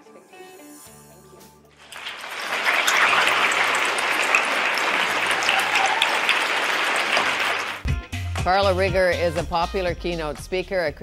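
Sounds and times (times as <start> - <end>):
audience applauding: 1.8 - 7.9.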